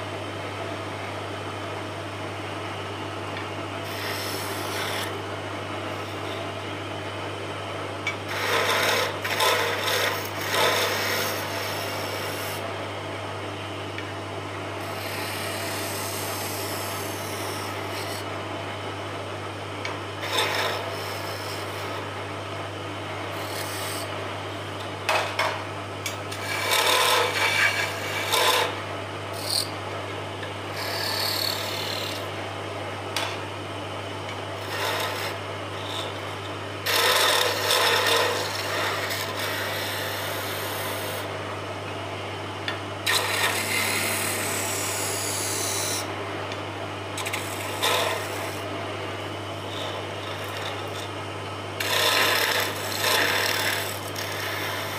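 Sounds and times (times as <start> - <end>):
tool scraping spinning wood: 3.8 - 5.2, 8.3 - 12.6, 14.8 - 18.3, 20.2 - 22.1, 23.3 - 24.1, 26.3 - 29.8, 30.7 - 32.3, 34.6 - 41.3, 43.0 - 46.1, 47.2 - 48.7, 49.6 - 51.1, 51.8 - 54.9
wood lathe humming: 3.8 - 5.2, 8.3 - 12.6, 14.8 - 18.3, 20.2 - 22.1, 23.3 - 24.1, 26.3 - 29.7, 30.7 - 32.3, 34.6 - 36.2, 36.8 - 41.3, 43.1 - 46.1, 47.2 - 48.7, 49.6 - 51.0, 51.8 - 54.9.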